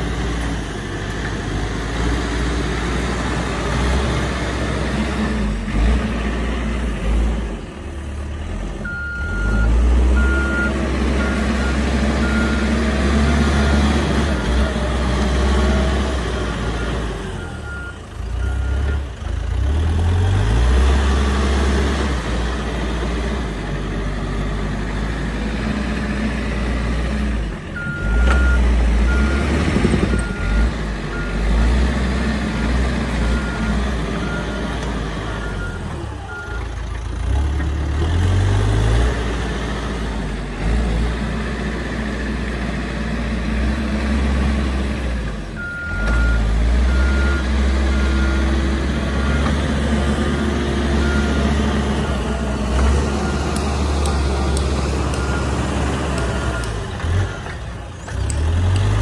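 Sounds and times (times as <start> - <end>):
diesel engine under load: 0.0 - 59.0
reversing alarm beeps: 8.8 - 13.9, 45.6 - 48.5, 51.0 - 52.2.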